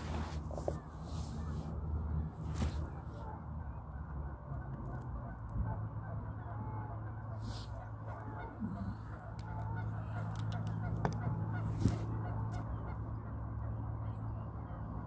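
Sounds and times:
steady low hum: 0:00.0 - 0:15.0
waterfowl honking: 0:05.2 - 0:14.4.

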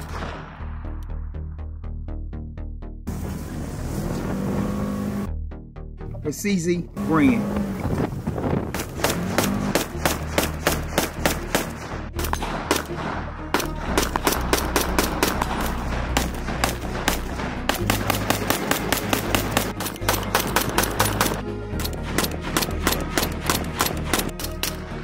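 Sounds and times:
rifle firing rapid shots: 0:08.7 - 0:24.8.

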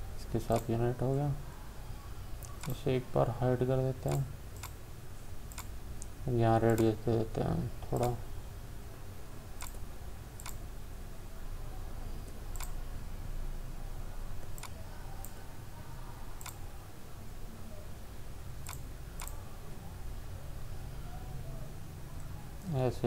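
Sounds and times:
low steady hum: 0:00.0 - 0:23.0
computer mouse clicking: 0:00.5 - 0:00.7, 0:02.4 - 0:02.8, 0:05.5 - 0:06.1, 0:06.7 - 0:07.0, 0:07.9 - 0:08.2, 0:09.6 - 0:09.8, 0:10.4 - 0:10.6, 0:12.3 - 0:12.8, 0:14.4 - 0:15.4, 0:16.4 - 0:16.6, 0:18.6 - 0:19.4.

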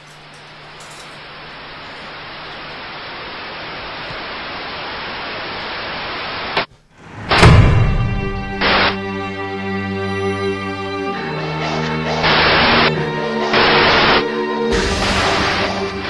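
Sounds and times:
television static hiss: 0:00.0 - 0:06.7, 0:08.6 - 0:09.0, 0:11.2 - 0:16.0.

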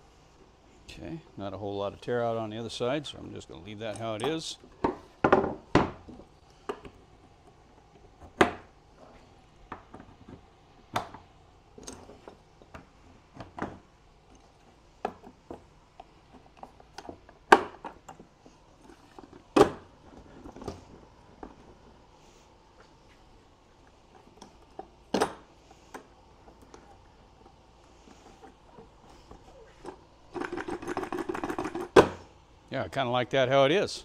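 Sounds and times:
metal caster wheels clicking and knocking: 0:26.6 - 0:32.0.

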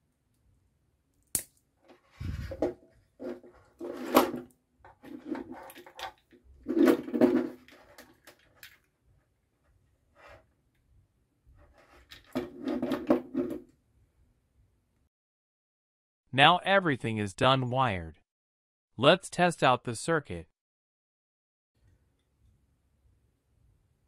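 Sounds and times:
cables rustling and dragging: 0:01.9 - 0:08.9, 0:11.5 - 0:13.6.

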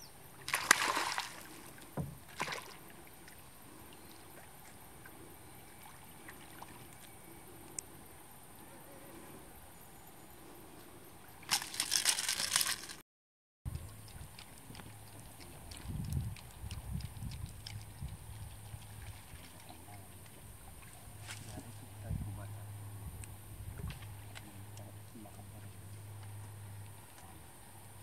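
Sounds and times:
fish splashing at surface: 0:00.4 - 0:02.8, 0:11.5 - 0:13.0
fish thrashing and splashing: 0:00.4 - 0:02.8, 0:11.5 - 0:13.0.

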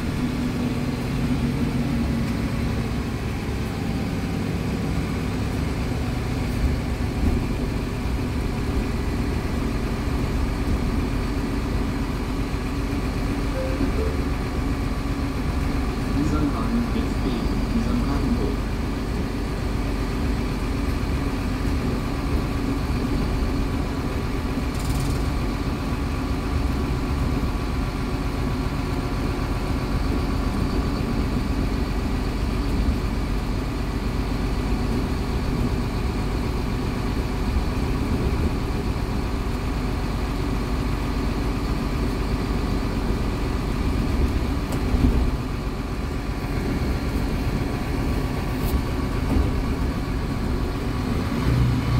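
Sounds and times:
bus engine idling: 0:00.0 - 0:51.9.

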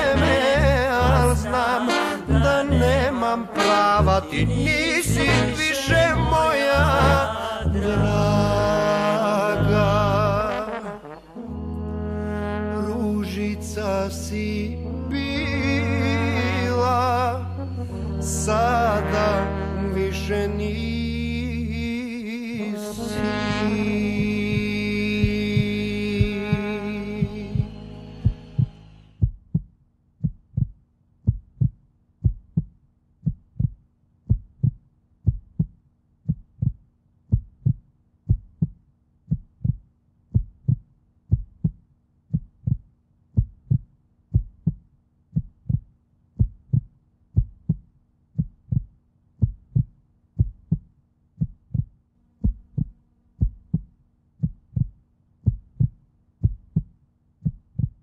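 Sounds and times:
heartbeat thumps: 0:24.2 - 0:58.0.

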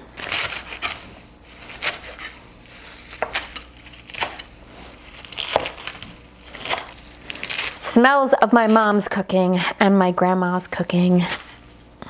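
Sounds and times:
knife chopping on wooden board: 0:03.1 - 0:04.4, 0:05.3 - 0:06.0.

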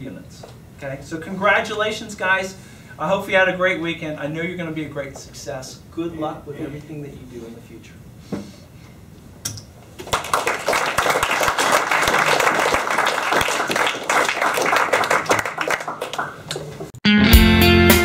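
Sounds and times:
audience applauding: 0:10.0 - 0:16.9
guitar music: 0:17.0 - 0:18.0.

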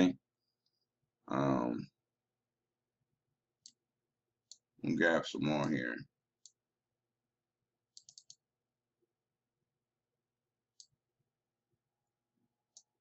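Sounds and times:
computer mouse clicks: 0:07.9 - 0:08.4, 0:10.7 - 0:11.0, 0:12.7 - 0:13.0.

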